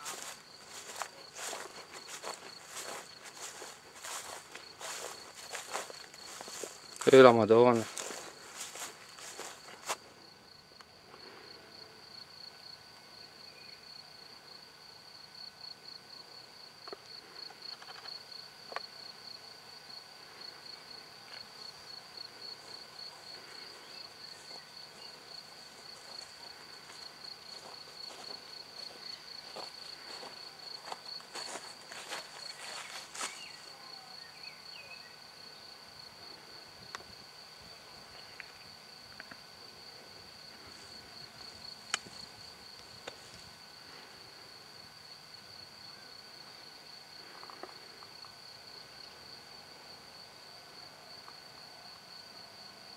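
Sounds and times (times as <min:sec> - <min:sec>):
crickets trilling: 0:00.0 - 0:52.9.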